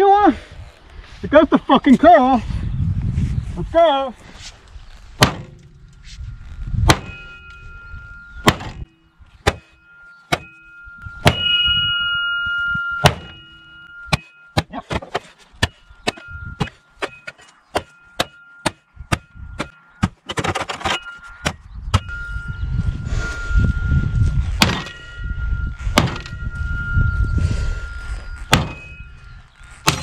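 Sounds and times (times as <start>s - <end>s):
axe head hitting sheet metal: 5.2s - 5.7s, 6.8s - 7.2s, 8.4s - 9.7s, 11.2s - 11.5s, 13.0s - 13.4s, 24.6s - 24.9s, 28.5s - 28.9s
metallic ringing tone: 5.5s - 30.0s.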